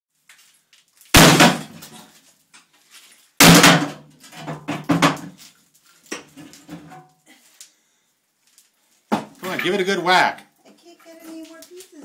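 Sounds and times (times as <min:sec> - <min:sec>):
sledgehammer striking iron bathtub: 0:01.2 - 0:01.8, 0:03.4 - 0:05.2
knocks and clatters: 0:03.4 - 0:05.4.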